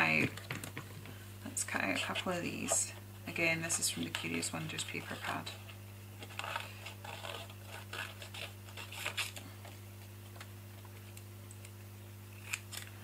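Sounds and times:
low electrical hum: 0:00.0 - 0:13.0
scissors snipping paper: 0:06.2 - 0:09.4, 0:12.4 - 0:13.0.

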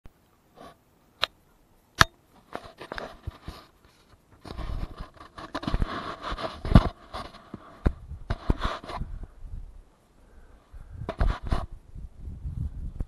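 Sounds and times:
rustling and scuffing: 0:02.3 - 0:09.1.

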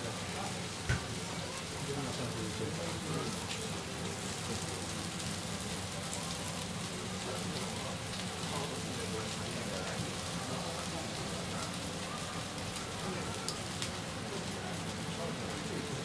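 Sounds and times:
batter sizzling on griddle: 0:00.0 - 0:16.0.

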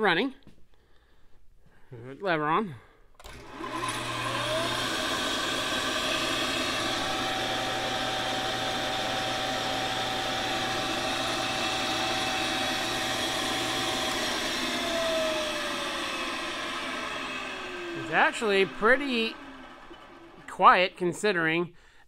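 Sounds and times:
milling machine motor whine: 0:03.2 - 0:20.8
spindle winding down: 0:03.2 - 0:21.4.

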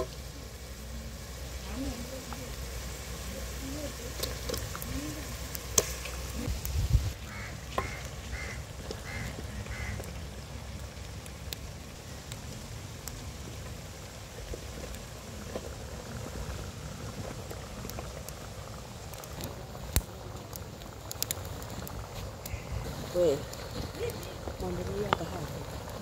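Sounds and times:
bird calls: 0:07.2 - 0:10.5, 0:22.4 - 0:24.4.

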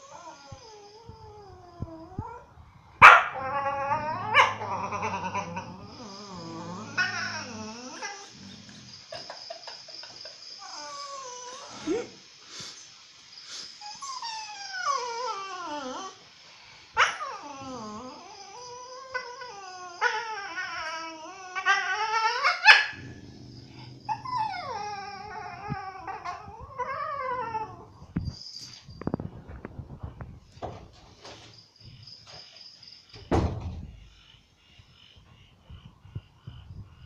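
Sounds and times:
dog whining and howling: 0:00.0 - 0:09.1, 0:10.6 - 0:12.2, 0:13.8 - 0:16.3, 0:17.0 - 0:28.8
dog growling low: 0:00.0 - 0:09.2, 0:17.3 - 0:28.1.

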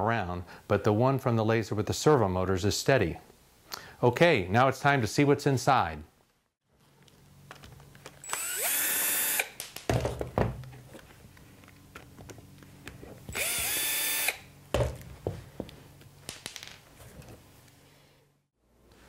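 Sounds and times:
cordless drill motor whine: 0:08.2 - 0:09.6, 0:13.3 - 0:14.5
handling knocks: 0:09.6 - 0:11.0, 0:14.7 - 0:15.7.

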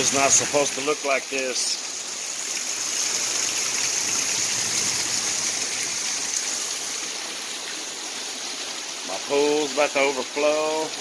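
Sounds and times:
heavy rain hiss: 0:00.0 - 0:11.0
water pouring off roof: 0:00.0 - 0:11.0.

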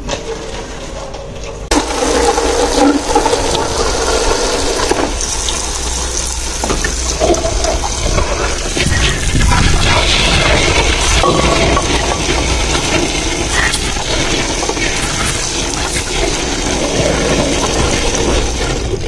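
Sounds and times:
tap water splashing into tub: 0:04.8 - 0:09.5.

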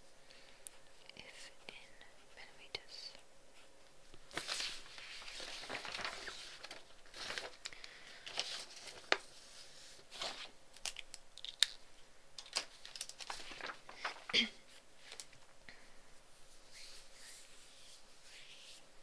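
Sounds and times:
crinkling and rustling: 0:04.1 - 0:11.8, 0:12.4 - 0:15.6.

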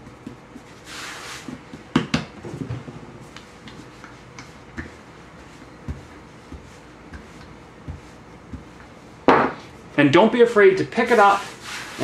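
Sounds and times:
hands rustling on floured surface: 0:00.0 - 0:01.9, 0:02.8 - 0:09.8, 0:11.1 - 0:12.0
rolling pin rolling: 0:00.0 - 0:09.5.

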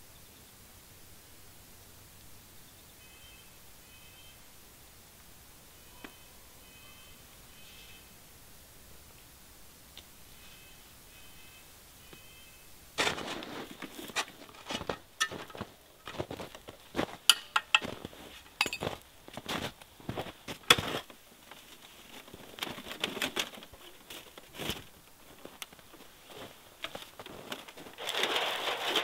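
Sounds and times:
camp gear being handled: 0:13.0 - 0:29.0
footsteps crunching in snow: 0:13.0 - 0:29.0.

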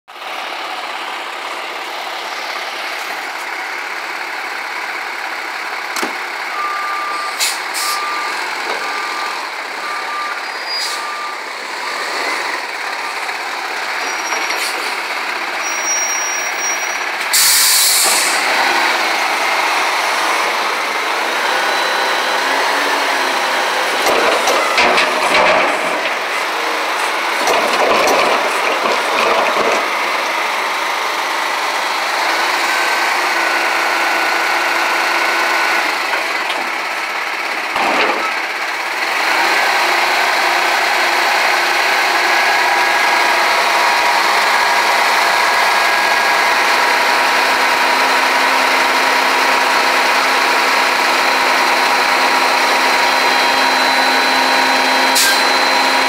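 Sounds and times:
diesel engine running: 0:00.1 - 0:56.0
reversing beeps: 0:06.5 - 0:13.3, 0:51.3 - 0:56.0
air brake hiss: 0:07.3 - 0:08.0, 0:17.3 - 0:18.4, 0:55.2 - 0:55.5.

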